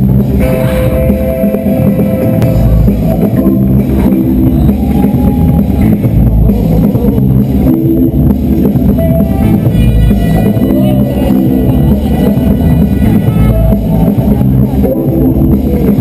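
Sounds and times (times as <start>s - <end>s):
loud dance music with heavy bass: 0.0s - 16.0s.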